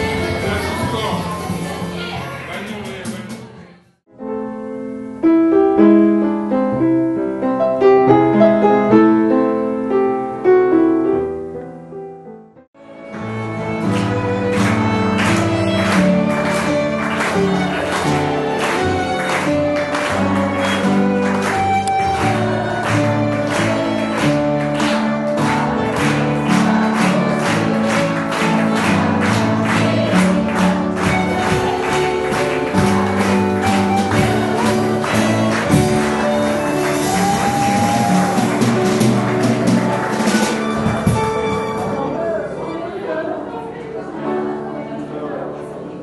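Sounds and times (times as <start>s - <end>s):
people clapping along: 2.6s - 3.5s, 13.7s - 41.9s
piano and violin playing: 4.2s - 12.0s, 12.8s - 45.5s.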